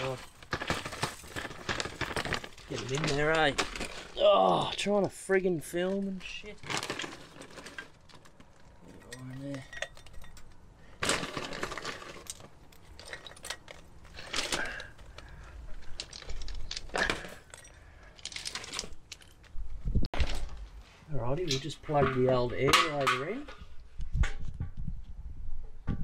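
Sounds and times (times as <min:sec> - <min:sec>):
wood chips rattling into metal canister: 0:00.0 - 0:05.0, 0:05.8 - 0:10.2, 0:11.0 - 0:19.0.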